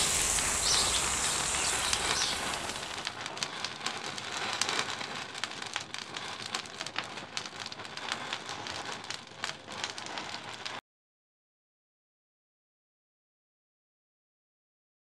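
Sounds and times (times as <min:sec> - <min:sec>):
flame hissing: 0:00.0 - 0:06.7
matches crackling and popping: 0:00.0 - 0:10.8.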